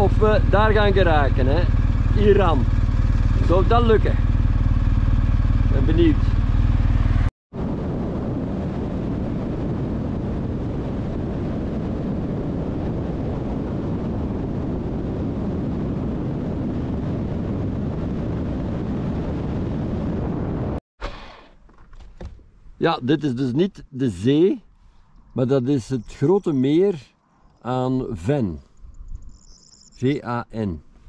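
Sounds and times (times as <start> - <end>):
motorcycle road noise: 0.0 - 23.0
wind rushing: 6.2 - 20.8.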